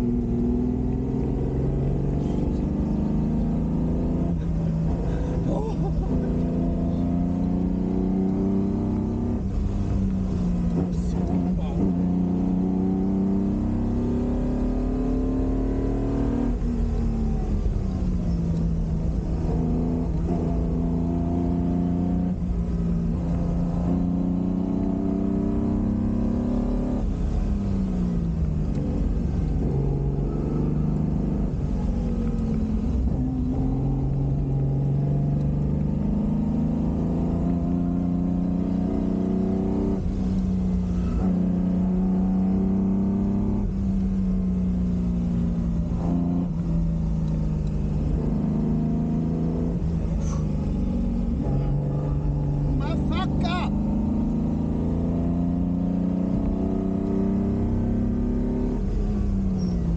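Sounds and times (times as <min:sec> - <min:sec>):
car engine accelerating: 0:00.0 - 0:59.9
wind and road noise: 0:00.0 - 0:59.9.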